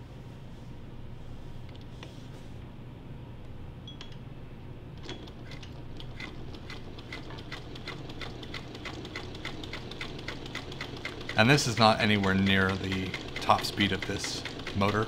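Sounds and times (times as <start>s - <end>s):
sewing machine motor hum: 5.0s - 15.0s
sewing machine stitch clicking: 5.0s - 15.0s.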